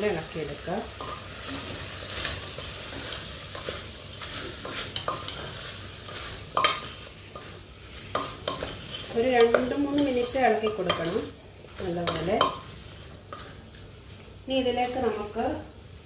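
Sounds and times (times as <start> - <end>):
food sizzling in oil: 0.0 - 16.0
spatula scraping and knocking pot: 1.0 - 12.7.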